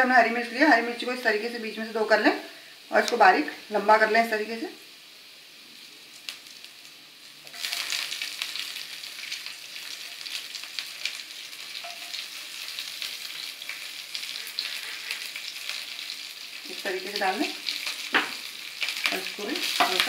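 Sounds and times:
oil sizzling and crackling: 0:00.0 - 0:20.0.

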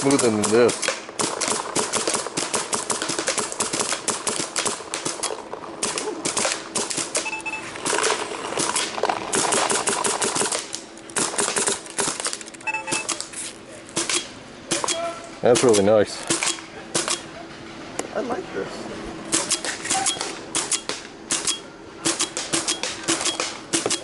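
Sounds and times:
paintball marker shots popping: 0:00.0 - 0:07.2.

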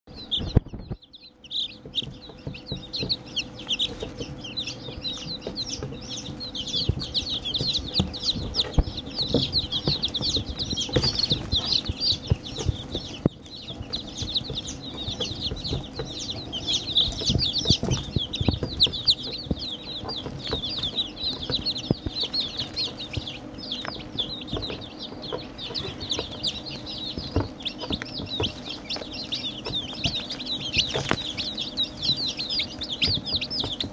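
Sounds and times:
chicks peeping: 0:00.1 - 0:33.9.

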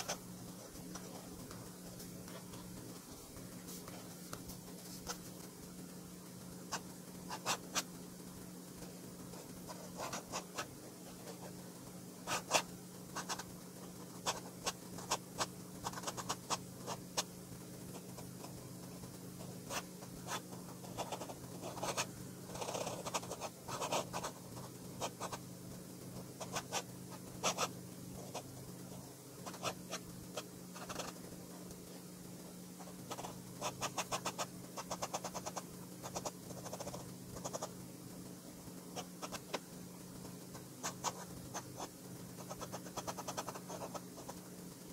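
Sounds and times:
fountain pen scratching on paper: 0:00.0 - 0:02.8, 0:06.7 - 0:07.9, 0:09.3 - 0:11.6, 0:12.2 - 0:17.3, 0:19.4 - 0:25.4, 0:26.4 - 0:28.5, 0:29.4 - 0:31.2, 0:32.8 - 0:37.7, 0:40.5 - 0:44.4.

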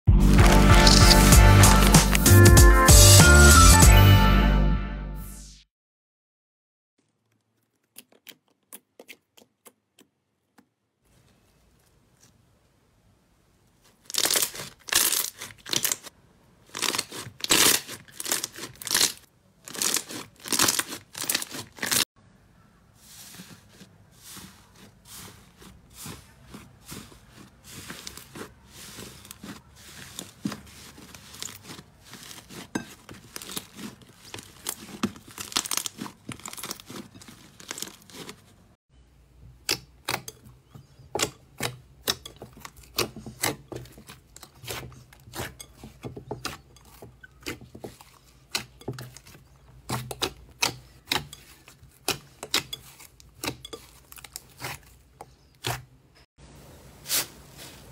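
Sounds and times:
hands squishing slime: 0:07.0 - 0:12.4, 0:13.8 - 0:22.0, 0:23.0 - 0:38.6, 0:39.6 - 0:55.9.

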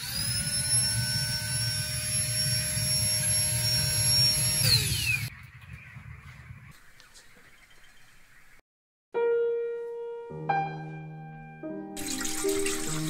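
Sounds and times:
small electric motor whining: 0:00.0 - 0:05.3.

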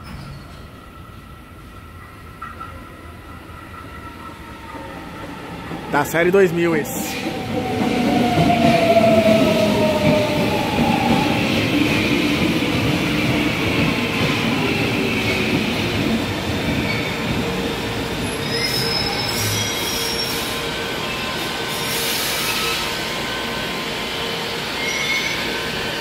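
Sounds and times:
electric train wheels rumbling on rails: 0:00.0 - 0:26.0
high brake squeals: 0:18.2 - 0:20.6, 0:21.7 - 0:23.0, 0:24.7 - 0:25.5.

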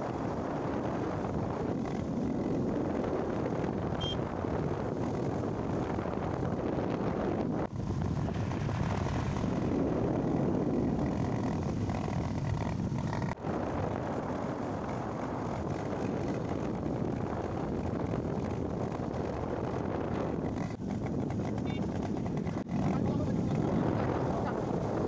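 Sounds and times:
motorcycle engine: 0:00.0 - 0:25.0
road noise: 0:00.0 - 0:25.0
wind rush on microphone: 0:00.0 - 0:25.0.

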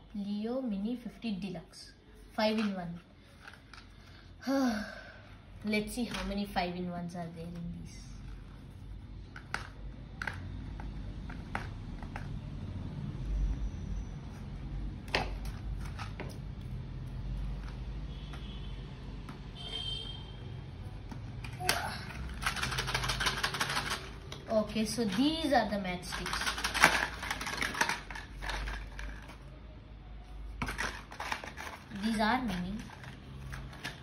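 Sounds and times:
cardboard and paper rustling: 0:30.5 - 0:34.0.

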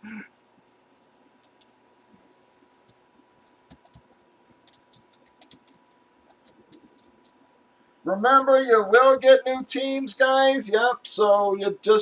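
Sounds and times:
faint steady hum: 0:00.0 - 0:12.0
computer keyboard clicking: 0:02.9 - 0:07.4.

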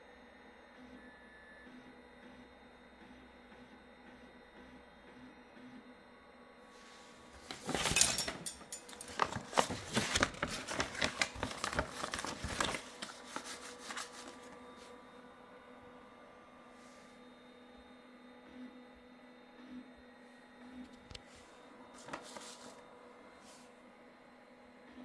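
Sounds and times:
paper rustling and crinkling: 0:06.9 - 0:15.0, 0:21.1 - 0:22.9.

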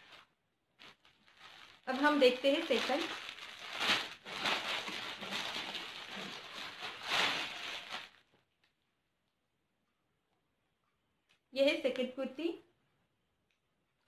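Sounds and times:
plastic packaging crinkling: 0:00.0 - 0:08.4.

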